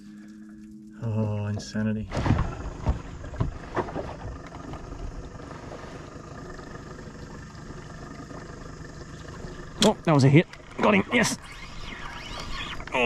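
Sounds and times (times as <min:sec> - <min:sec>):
boat motor idling: 0:01.4 - 0:13.0.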